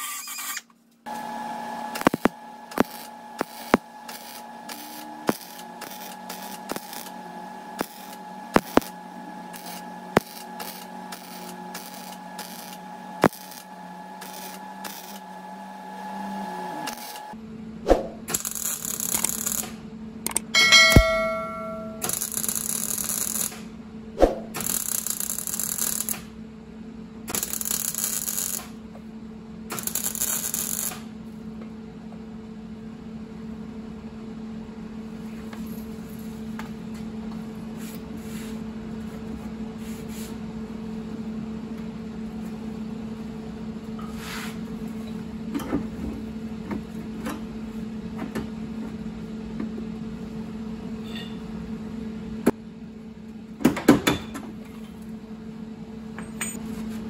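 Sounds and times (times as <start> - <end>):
welder arc bursts: 1.9 - 15.3, 18.3 - 19.8, 22.0 - 23.6, 24.6 - 26.3, 27.3 - 28.7, 29.7 - 31.0
steady low hum: 16.7 - 22.8.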